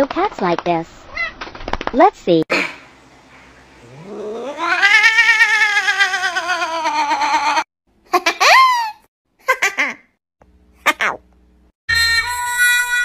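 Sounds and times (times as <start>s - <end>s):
cat yowling: 4.0s - 7.7s.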